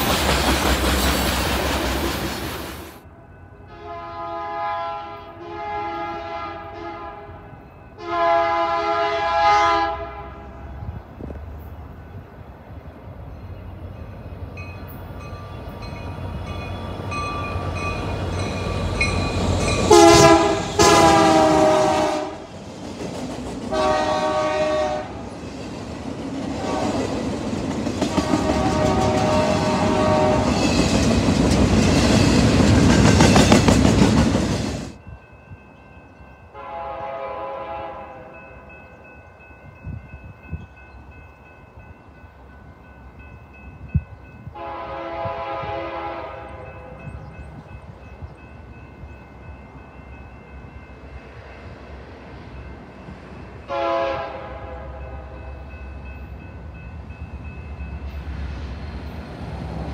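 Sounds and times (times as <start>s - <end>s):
rail cars clattering past: 0.0s - 59.9s
locomotive air horn blasts: 3.7s - 10.6s, 19.9s - 22.5s, 23.7s - 25.2s, 26.6s - 27.0s, 28.2s - 30.7s, 36.6s - 38.4s, 44.5s - 47.0s, 53.7s - 55.4s.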